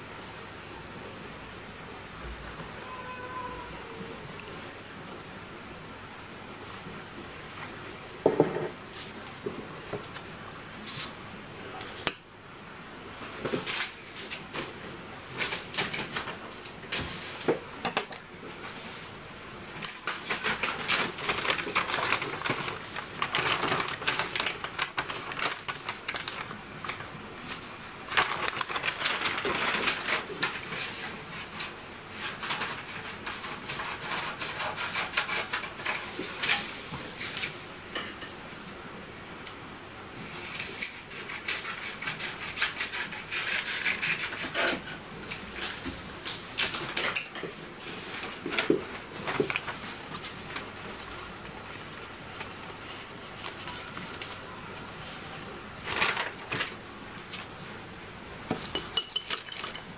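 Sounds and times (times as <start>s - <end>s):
knock on tabletop: 8.3s - 8.8s
paper rustling and crinkling: 13.2s - 17.7s, 18.5s - 37.6s, 40.2s - 57.8s.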